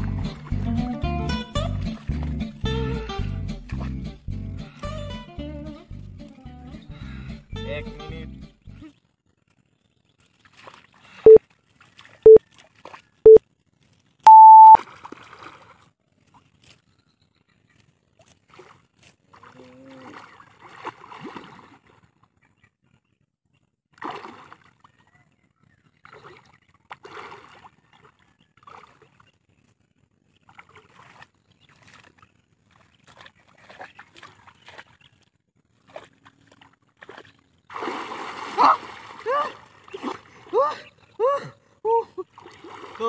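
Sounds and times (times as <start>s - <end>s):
water splashing and sloshing: 0.0s - 4.2s, 8.8s - 17.0s, 17.7s - 22.6s, 23.9s - 43.0s
countdown beeps: 14.3s - 14.8s.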